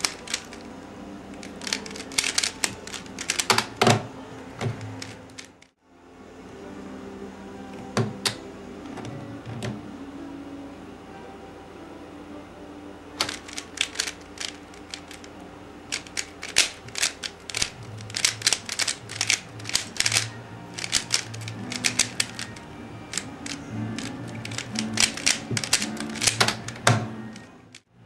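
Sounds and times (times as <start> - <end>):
puzzle cube plastic clicks: 0.0 - 0.7, 1.3 - 5.7, 13.2 - 15.3, 15.9 - 27.8
soft music: 0.0 - 28.0.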